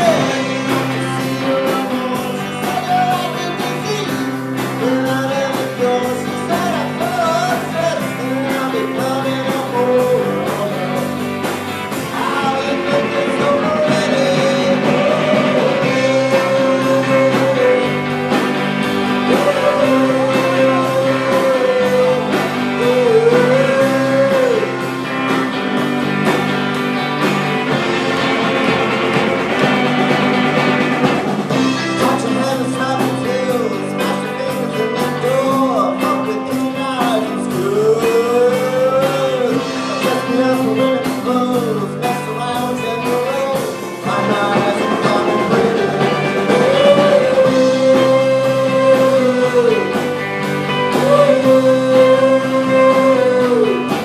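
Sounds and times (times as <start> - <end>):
man singing: 0.0 - 25.8, 31.5 - 54.0
drum kit: 0.0 - 54.0
electric guitars: 0.0 - 54.0.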